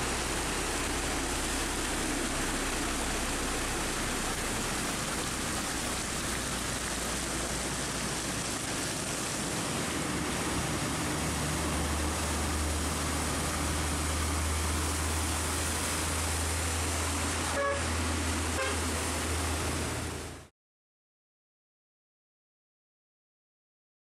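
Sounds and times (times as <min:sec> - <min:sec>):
rain and tyre spray hiss: 0:00.0 - 0:20.5
truck engine drone: 0:00.0 - 0:20.5
vehicle horn toots: 0:17.5 - 0:17.9, 0:18.6 - 0:18.9.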